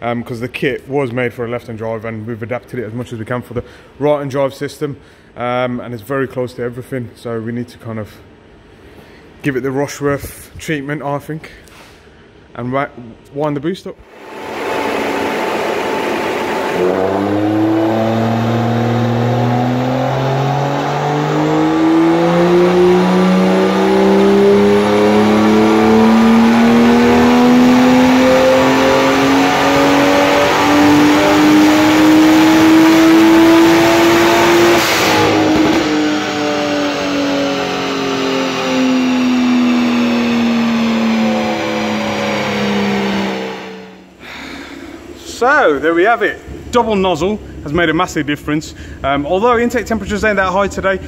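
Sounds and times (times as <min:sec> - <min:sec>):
car engine revving on dyno: 0:14.1 - 0:44.2.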